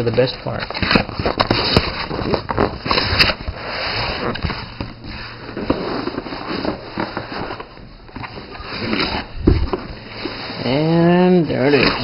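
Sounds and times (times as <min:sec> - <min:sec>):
cardboard box rustling and scraping: 0:00.0 - 0:12.0
cardboard snapping: 0:00.7 - 0:05.0.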